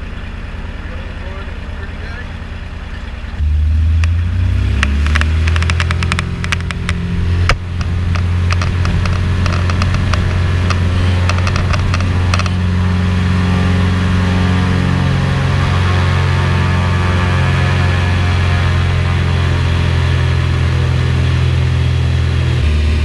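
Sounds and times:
plane engine and propeller drone: 0.0 - 23.0
clicks and rattles: 4.8 - 12.6.

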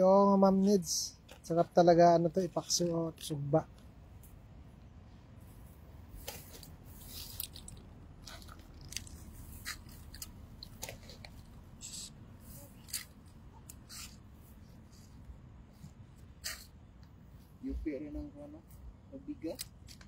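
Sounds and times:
fishing net mesh rustling: 5.6 - 14.6.

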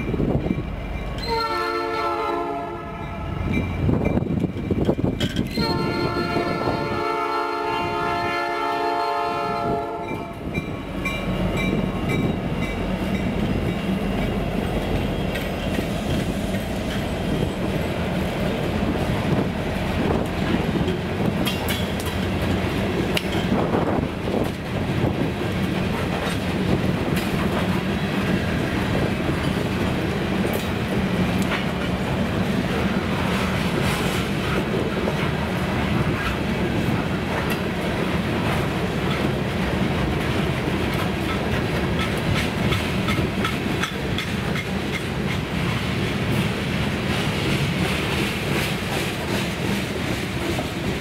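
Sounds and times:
train cars rumbling past: 0.0 - 51.0
locomotive air horn blast: 1.2 - 3.4, 5.5 - 10.3
wheels clacking over rail joints: 3.5 - 6.5, 9.8 - 51.0.

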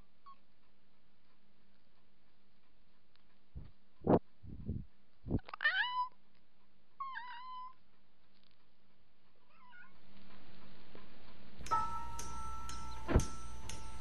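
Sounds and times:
low bumps on camera: 3.5 - 5.5
cat meowing: 5.4 - 6.2, 7.0 - 7.8, 9.5 - 10.0.

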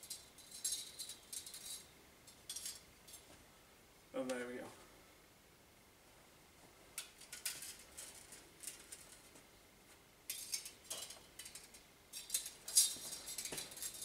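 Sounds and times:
bandsaw blade coils rattling: 0.0 - 3.2, 10.3 - 14.0.

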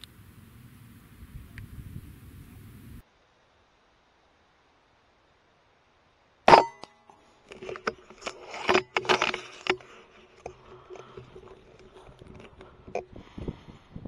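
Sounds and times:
faint steady hum: 0.0 - 14.0
irregular clicks and rattles: 7.5 - 13.1.

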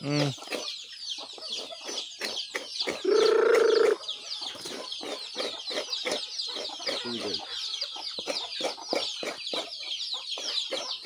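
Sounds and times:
chicks peeping: 0.0 - 11.0
hens clucking: 0.0 - 11.0
chicken loud call: 3.0 - 4.0.

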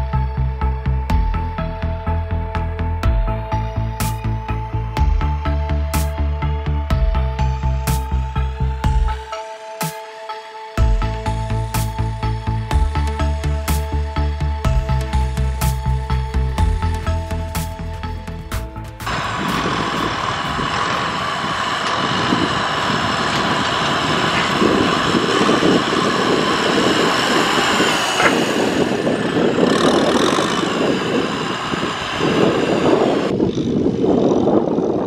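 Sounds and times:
whine: 0.0 - 35.0
diesel tractor engine under load: 10.8 - 35.0.

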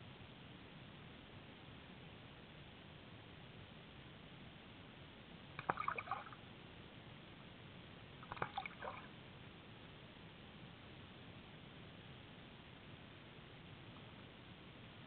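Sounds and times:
faint steady hiss: 0.0 - 15.0
water clicks and blips: 5.6 - 6.4, 8.2 - 9.1.

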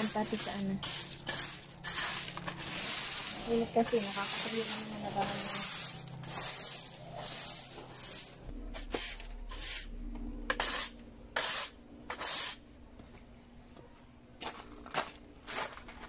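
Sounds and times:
broom sweeping: 0.0 - 9.9, 10.5 - 12.6.

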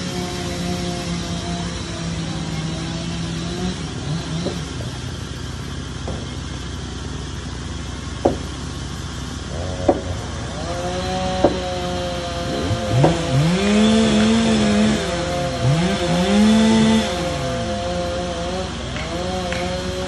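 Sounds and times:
crane engine humming: 0.0 - 20.0
sharp knocks: 8.2 - 8.5, 9.5 - 14.7.

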